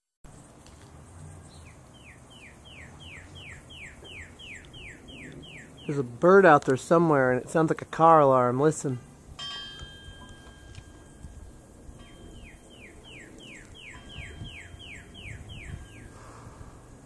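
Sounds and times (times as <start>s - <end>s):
cardinal singing whistles: 2.0s - 6.0s, 9.8s - 16.3s.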